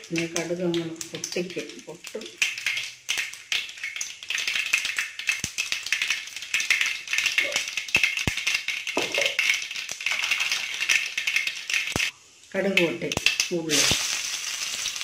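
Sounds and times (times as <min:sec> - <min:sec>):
mustard seeds popping in oil: 0:00.0 - 0:15.0
oil sizzling: 0:00.0 - 0:15.0.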